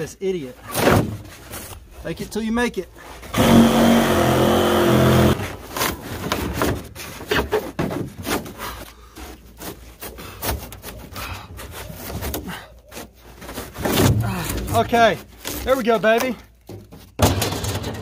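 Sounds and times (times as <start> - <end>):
cordless saw cutting foam: 3.3 - 5.6.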